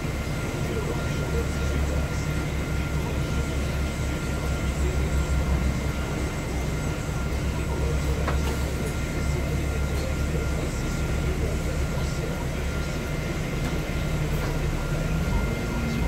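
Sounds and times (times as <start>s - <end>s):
bus engine idling: 0.0s - 16.0s
thin steady whine: 0.0s - 16.0s.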